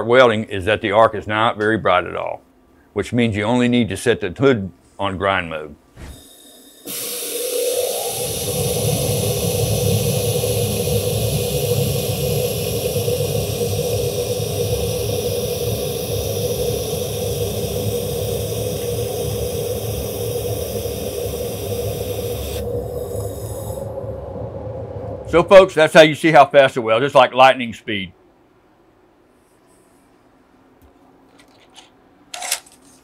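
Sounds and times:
steady hum: 0.0s - 30.8s
laser welder hissing: 6.0s - 24.0s.

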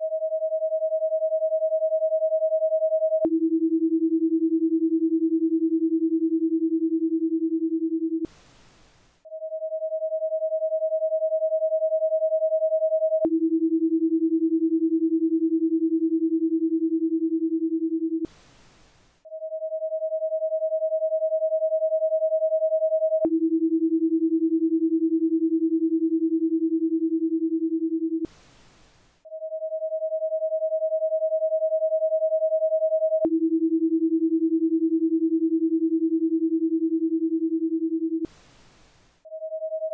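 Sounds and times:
faint hiss: 8.3s - 9.2s, 18.3s - 19.2s, 28.3s - 29.2s, 38.3s - 39.2s.

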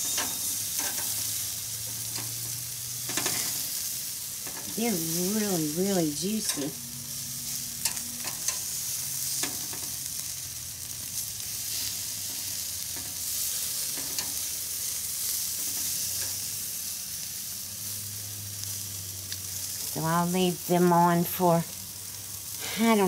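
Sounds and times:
patties sizzling on grill: 0.0s - 23.0s
metal tongs clicking: 6.5s - 6.7s.

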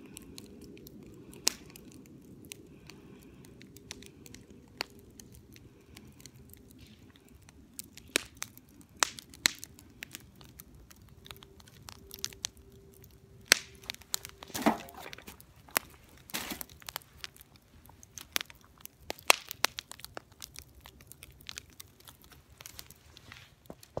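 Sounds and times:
log fire crackling and popping: 0.0s - 24.0s.

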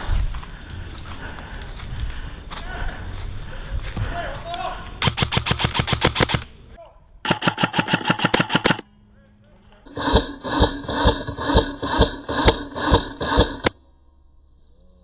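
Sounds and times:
airsoft gun full-auto burst: 5.0s - 6.5s, 7.3s - 8.8s
ringing pulses: 7.3s - 8.9s.

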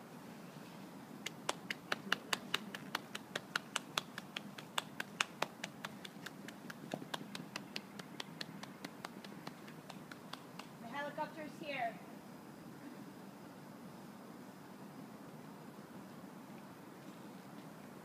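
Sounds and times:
fingers snapping: 1.2s - 10.8s.

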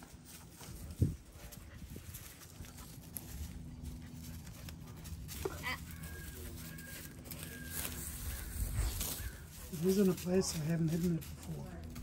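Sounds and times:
low steady hum: 0.0s - 12.0s
bird calling: 5.5s - 10.2s.

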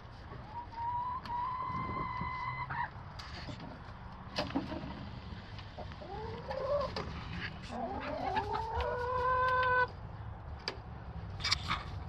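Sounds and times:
hens making whining calls: 0.4s - 3.0s, 5.8s - 9.9s.

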